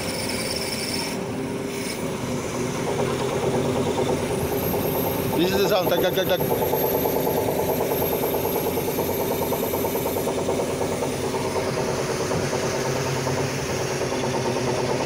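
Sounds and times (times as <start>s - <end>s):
crane hydraulic system drone: 0.0s - 15.0s
rough metallic pump noise: 0.0s - 15.0s.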